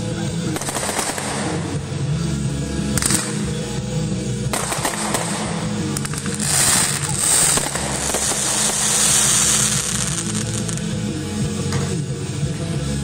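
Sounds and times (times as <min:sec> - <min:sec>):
steady music: 0:00.0 - 0:13.0
firework shells bursting: 0:04.5 - 0:10.9
firework hissing crackle: 0:04.5 - 0:11.1.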